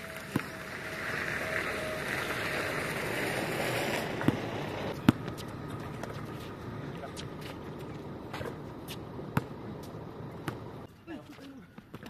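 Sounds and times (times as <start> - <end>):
basketball bouncing on hard court: 4.2 - 6.5, 7.2 - 10.7.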